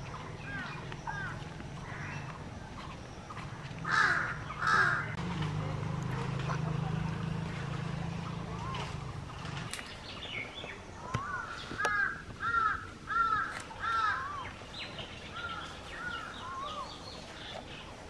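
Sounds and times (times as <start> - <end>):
small birds chirping: 0.0 - 18.0
crow cawing: 0.6 - 2.2, 3.8 - 5.2, 11.1 - 14.4.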